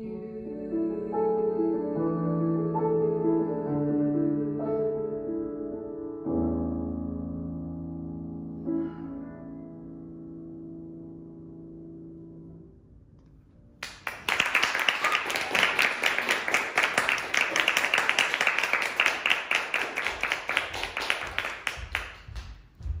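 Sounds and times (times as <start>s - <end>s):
piano chord: 0.7s - 13.9s
audience applause: 13.8s - 22.4s.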